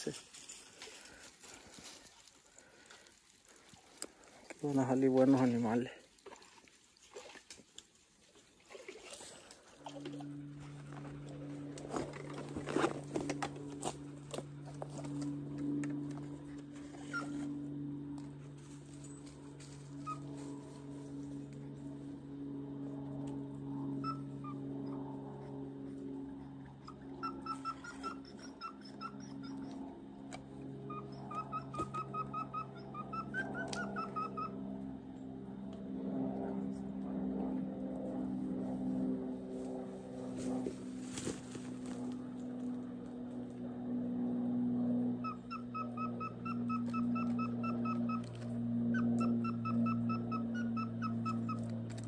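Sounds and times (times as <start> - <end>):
steady low hum: 0.0 - 52.0
bird calling clipped notes: 27.2 - 34.6, 45.3 - 52.0.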